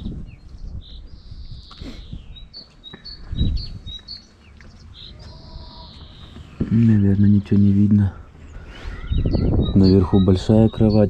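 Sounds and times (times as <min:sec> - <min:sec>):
songbird singing: 0:00.0 - 0:11.0
low microphone rumble: 0:04.7 - 0:11.0.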